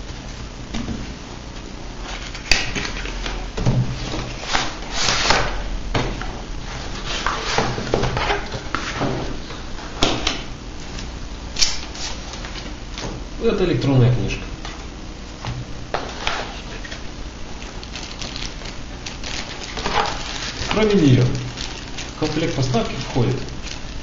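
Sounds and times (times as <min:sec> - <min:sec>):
cardboard scraping and rustling: 0:03.8 - 0:05.6, 0:06.6 - 0:09.4, 0:17.8 - 0:24.0.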